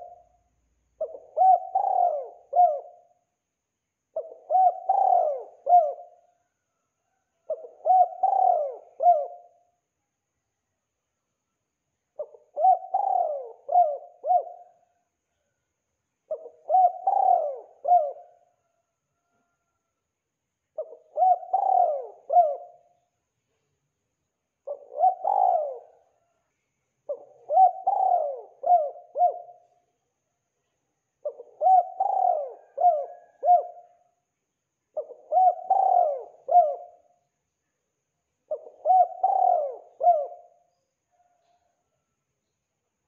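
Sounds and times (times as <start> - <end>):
dove cooing: 0.0 - 0.4, 1.0 - 3.2, 4.1 - 6.4, 7.1 - 9.7, 12.2 - 15.0, 16.3 - 19.8, 20.8 - 23.0, 24.6 - 26.3, 27.1 - 29.8, 31.2 - 34.1, 35.0 - 37.2, 38.5 - 41.8.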